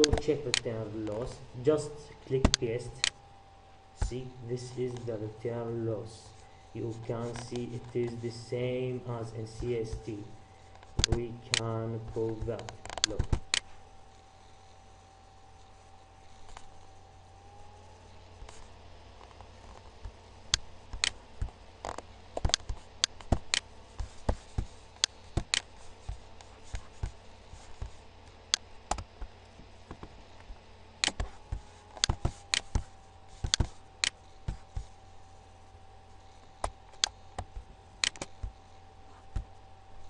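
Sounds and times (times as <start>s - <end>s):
faint electrical hum: 0.0s - 40.0s
computer mouse clicking: 20.5s - 29.1s, 31.0s - 34.9s, 36.6s - 38.6s.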